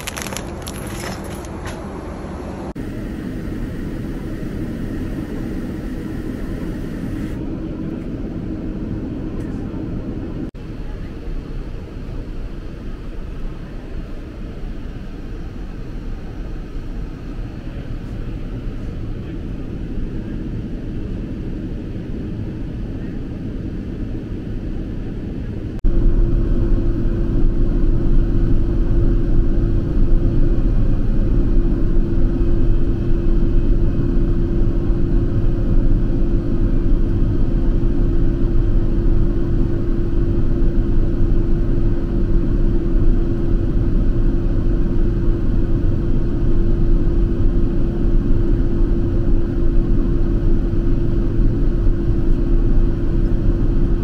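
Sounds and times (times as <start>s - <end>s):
aircraft cabin jet noise: 0.0s - 54.0s
steady droning tone: 2.7s - 11.0s, 25.7s - 54.0s.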